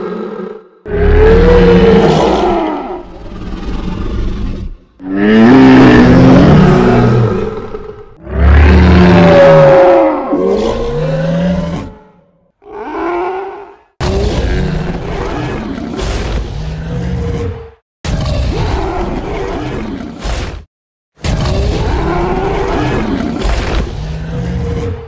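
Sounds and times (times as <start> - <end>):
deep creature roars: 0.0 - 20.2, 21.2 - 25.0.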